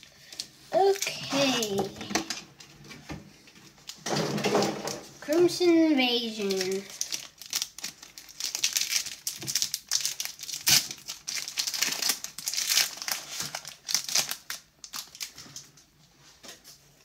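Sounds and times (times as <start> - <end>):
foil wrapper tearing and crinkling: 6.2 - 15.7.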